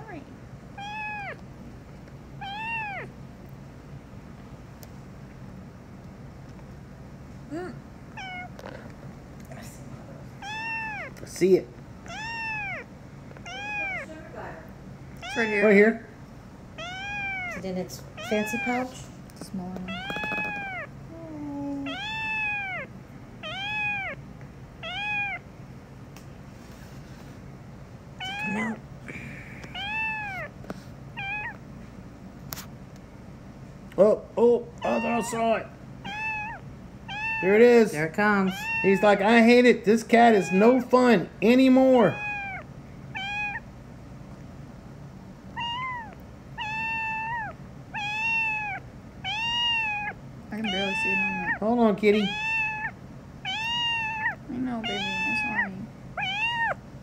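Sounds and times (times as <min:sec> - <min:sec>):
kitten meowing: 0:00.8 - 0:01.4, 0:02.4 - 0:03.2, 0:08.1 - 0:08.8, 0:10.4 - 0:11.2, 0:12.0 - 0:14.2, 0:15.2 - 0:15.8, 0:16.8 - 0:18.9, 0:19.8 - 0:24.2, 0:24.8 - 0:25.4, 0:28.2 - 0:28.8, 0:29.7 - 0:30.6, 0:31.2 - 0:31.6, 0:34.8 - 0:37.7, 0:38.5 - 0:39.3, 0:40.2 - 0:40.9, 0:41.8 - 0:43.6, 0:45.5 - 0:56.8.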